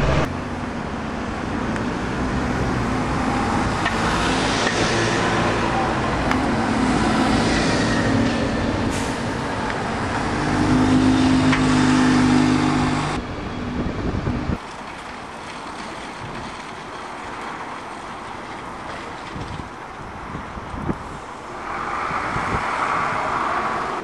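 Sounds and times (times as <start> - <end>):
bus diesel engine droning: 0.0 - 14.6
distant street traffic: 0.0 - 24.0.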